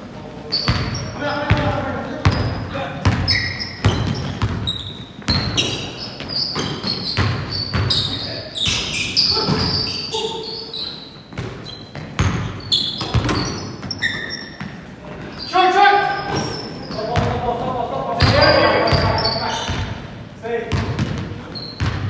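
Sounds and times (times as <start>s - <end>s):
sneakers squeaking on court: 0.4s - 17.5s, 18.2s - 20.1s, 20.7s - 22.0s
basketball bouncing on wooden floor: 0.7s - 9.9s, 11.3s - 14.8s, 16.3s - 17.4s, 18.2s - 19.9s, 20.7s - 22.0s.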